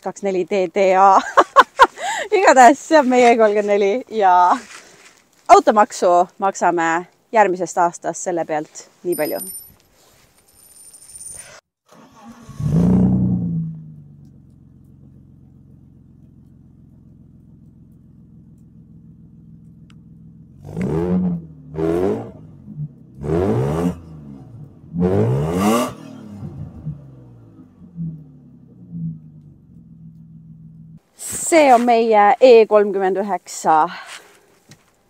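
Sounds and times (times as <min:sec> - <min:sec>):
diesel engine idling and revving: 0:12.0 - 0:31.1.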